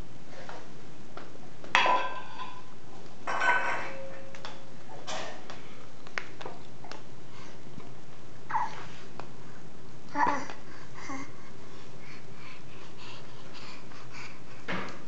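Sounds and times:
metal bowl clanging on floor: 1.8s - 4.4s.

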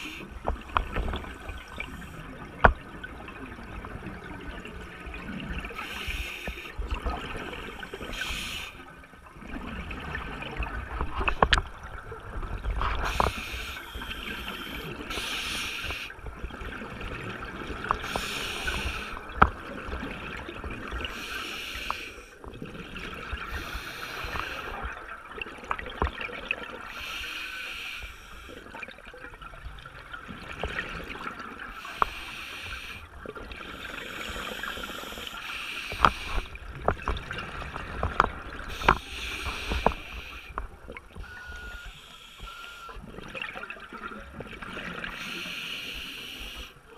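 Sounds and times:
diver breathing through regulator: 5.8s - 6.8s, 7.5s - 8.8s, 13.0s - 16.1s, 18.0s - 19.2s, 21.1s - 22.3s, 23.5s - 24.8s, 26.9s - 28.6s, 31.8s - 36.6s, 38.7s - 40.6s, 41.4s - 43.0s, 45.1s - 46.8s.

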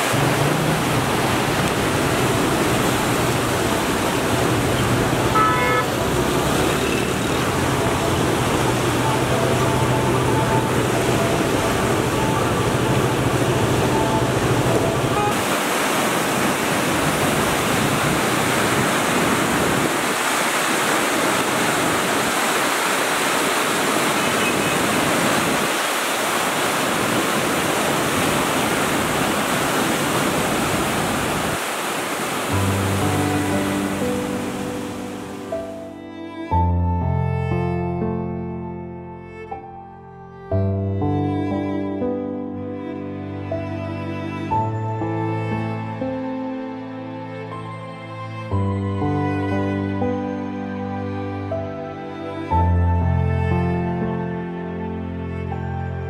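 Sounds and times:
floodwater rushing and churning: 0.0s - 35.9s.

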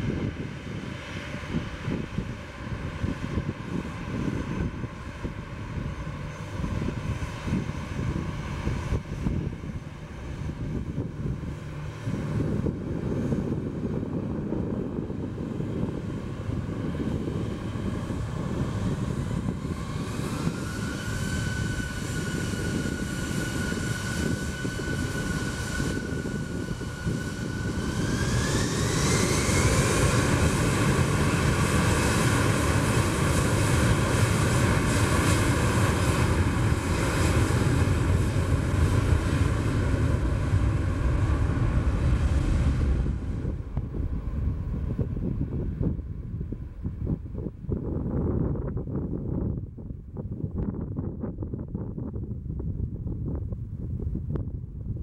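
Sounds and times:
jet engines spooling up: 5.8s - 47.5s.

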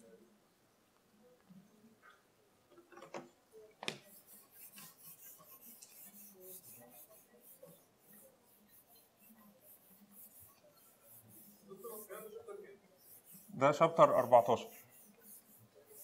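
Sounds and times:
marker scratching on whiteboard: 3.9s - 16.0s.

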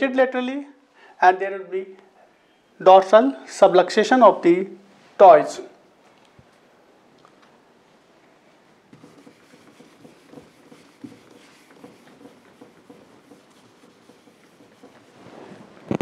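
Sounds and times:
eraser rubbing on whiteboard: 8.9s - 16.0s.

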